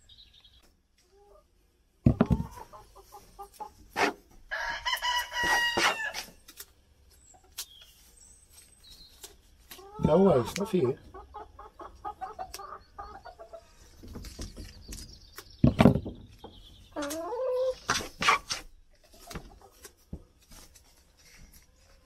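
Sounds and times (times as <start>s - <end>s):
hen clucking: 2.1s - 6.3s, 9.7s - 14.1s, 16.4s - 20.0s.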